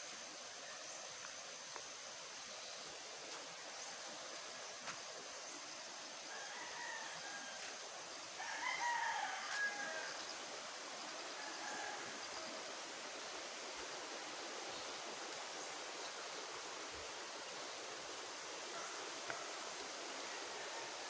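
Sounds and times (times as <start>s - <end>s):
river rushing over rocks: 0.0s - 21.0s
rooster crowing: 6.2s - 10.2s, 11.3s - 12.5s, 20.2s - 21.0s.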